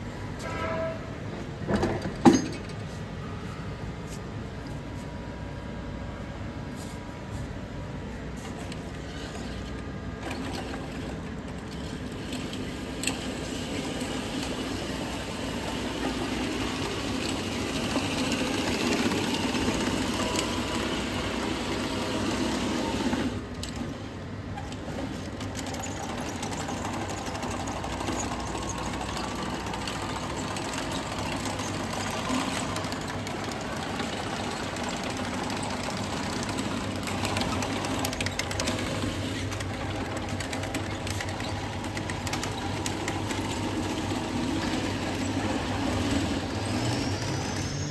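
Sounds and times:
electric motors whining: 0:08.7 - 0:23.8, 0:24.7 - 0:47.9.

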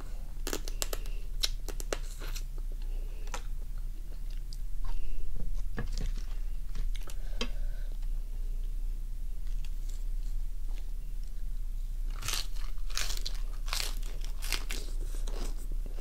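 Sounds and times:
steady low hum: 0:00.0 - 0:16.0
person chewing and sucking: 0:00.4 - 0:02.5, 0:12.1 - 0:16.0.

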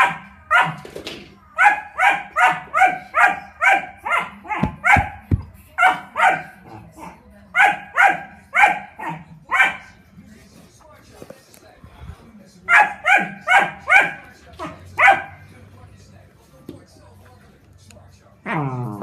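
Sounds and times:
puppy barking: 0:00.0 - 0:00.8, 0:01.5 - 0:06.7, 0:07.6 - 0:10.0, 0:12.7 - 0:15.5
dull knocks: 0:04.6 - 0:05.6.

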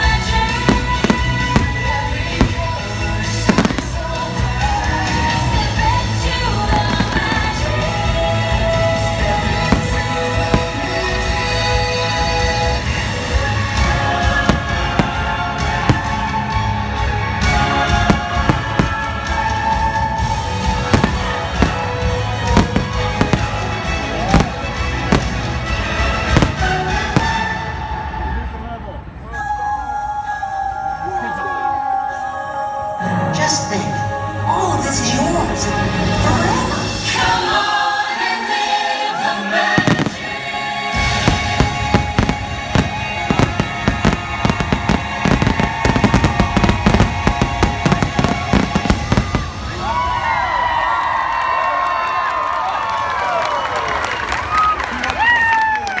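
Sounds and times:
fireworks bangs and crackles: 0:00.0 - 0:28.1, 0:39.7 - 0:50.7
music over loudspeakers: 0:00.0 - 0:28.4, 0:29.6 - 0:50.0
crowd cheering and whooping: 0:13.8 - 0:25.2, 0:41.0 - 0:56.0.

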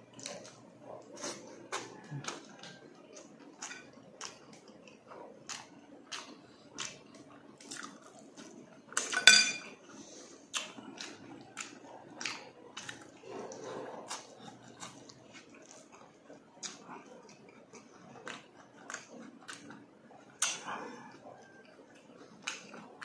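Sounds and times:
wet chewing and lip-smacking: 0:00.1 - 0:09.2, 0:10.4 - 0:23.0
fork clinking against dish: 0:09.1 - 0:09.7.

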